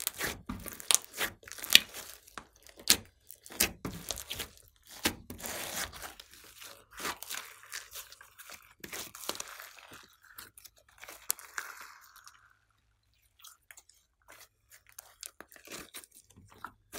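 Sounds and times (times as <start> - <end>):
slime crackling and popping: 0.0 - 12.5
slime tearing: 0.0 - 12.5, 14.3 - 16.9.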